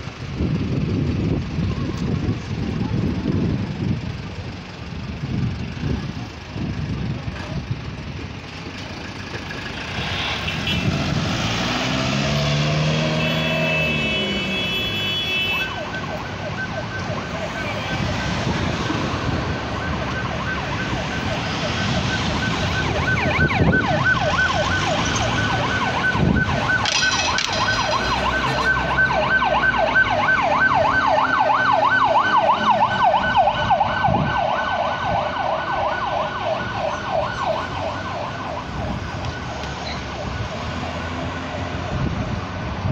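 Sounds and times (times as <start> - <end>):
street traffic passing: 0.0 - 42.9
emergency siren yelping: 15.4 - 41.8.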